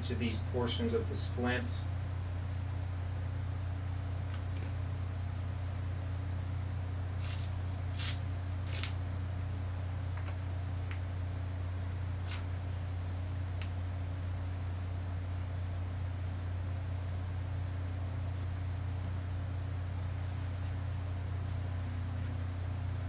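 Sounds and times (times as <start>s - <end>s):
steady low hum: 0.0s - 23.0s
bandage wrap rustling: 7.2s - 9.0s, 12.0s - 12.8s.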